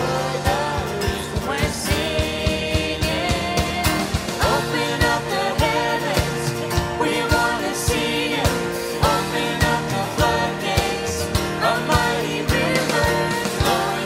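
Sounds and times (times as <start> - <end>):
person singing over a band: 0.0 - 14.0
steady drum beat: 0.0 - 14.0.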